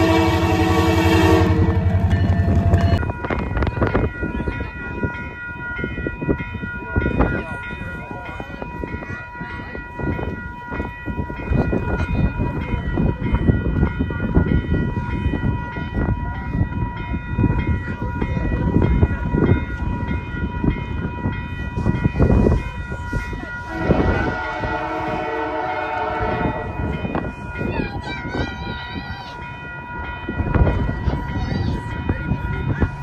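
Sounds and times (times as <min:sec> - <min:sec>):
train air horn chord: 0:00.0 - 0:02.1, 0:23.6 - 0:26.8
train rumbling: 0:00.0 - 0:33.0.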